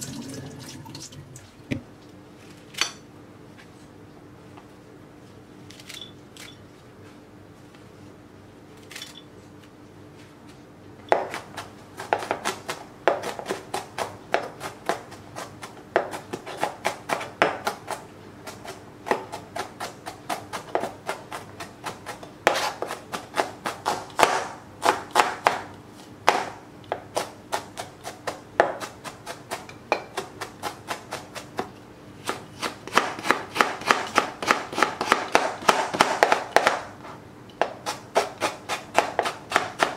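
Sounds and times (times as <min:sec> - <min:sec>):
knife chopping on plastic board: 0:11.1 - 0:36.9, 0:37.6 - 0:39.9.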